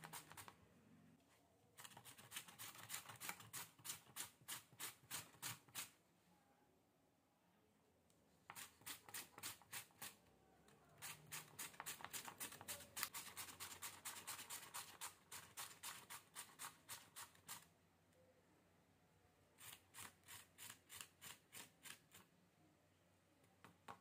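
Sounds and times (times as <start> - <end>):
potato grating strokes: 0.0 - 0.5, 1.8 - 5.9, 8.5 - 10.2, 11.0 - 17.7, 19.6 - 22.3.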